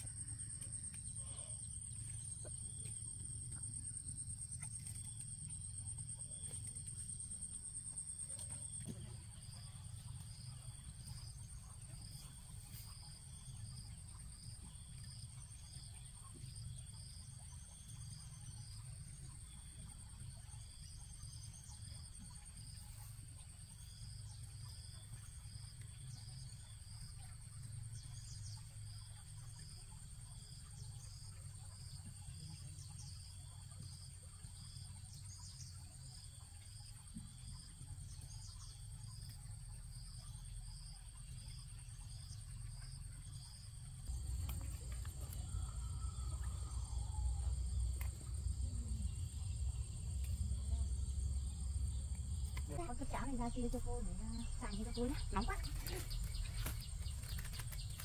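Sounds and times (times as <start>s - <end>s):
insect fast chirping: 0.0s - 58.0s
insect high continuous trill: 0.0s - 58.0s
low background rumble: 39.5s - 58.0s.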